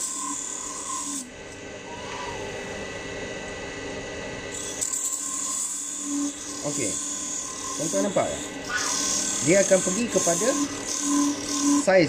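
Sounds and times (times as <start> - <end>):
wood lathe running: 0.0 - 2.4, 4.5 - 12.0
cutting tool shaving wood: 4.6 - 12.0.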